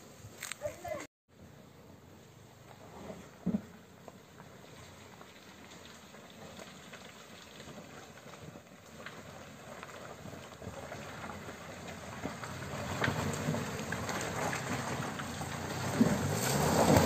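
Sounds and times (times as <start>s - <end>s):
vehicle engine driving through mud: 2.6s - 17.0s.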